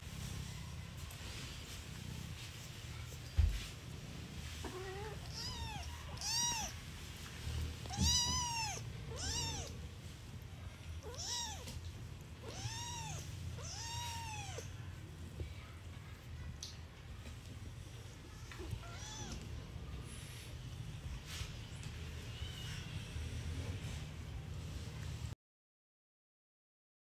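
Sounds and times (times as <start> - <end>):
kitten mewing: 4.7 - 6.7, 7.9 - 9.8, 11.0 - 11.7, 12.4 - 14.8.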